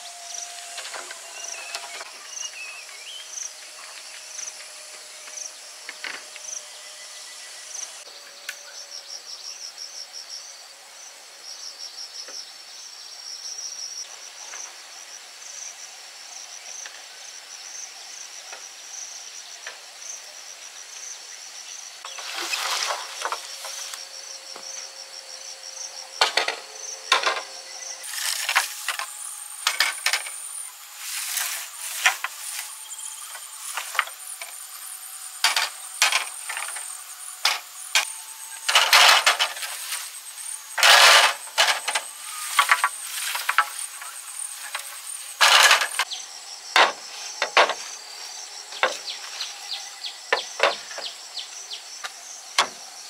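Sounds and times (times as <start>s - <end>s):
insects chirring: 0.0s - 53.0s
scraping and rustling: 22.1s - 24.0s, 26.2s - 34.7s, 35.4s - 46.1s.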